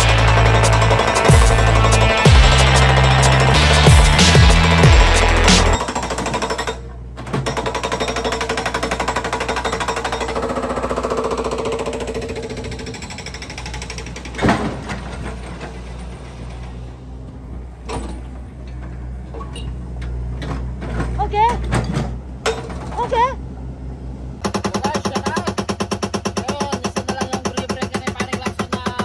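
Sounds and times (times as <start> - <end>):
hydraulic breaker hammering concrete: 0.0 - 16.5, 24.4 - 29.0
loud clunks: 11.4 - 23.0.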